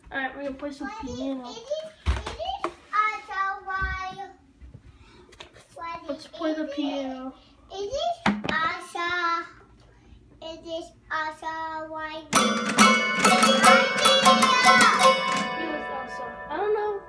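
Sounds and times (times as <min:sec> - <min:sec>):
child's voice: 0:00.6 - 0:04.4, 0:05.7 - 0:09.6, 0:10.4 - 0:12.3, 0:13.5 - 0:17.0
electronic keyboard notes ringing: 0:12.4 - 0:17.0.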